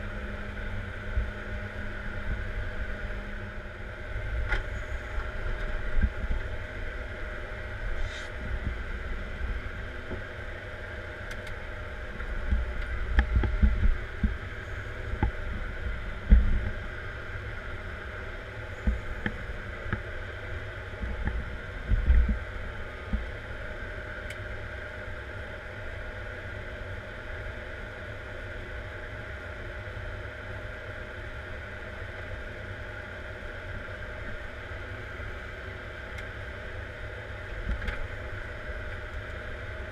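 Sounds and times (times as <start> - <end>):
diesel engine running: 0.0 - 24.0.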